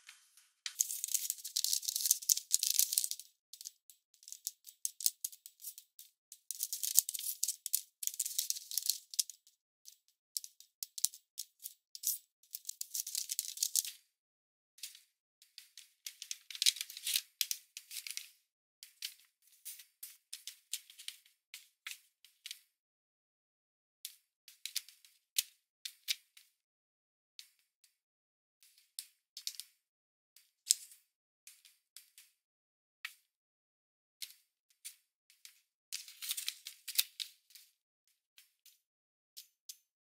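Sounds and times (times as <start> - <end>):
paper rustling and crackling: 0.8 - 3.2.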